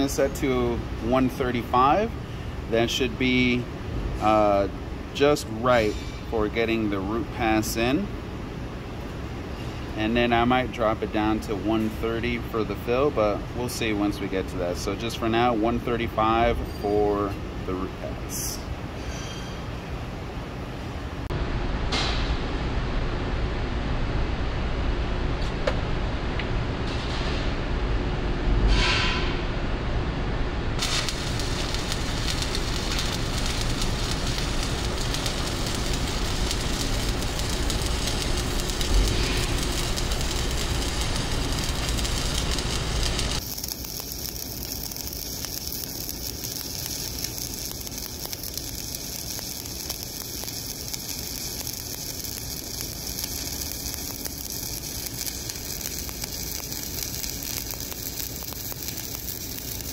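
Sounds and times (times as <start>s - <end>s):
welding arc sizzling: 0.0s - 2.1s, 30.8s - 59.9s.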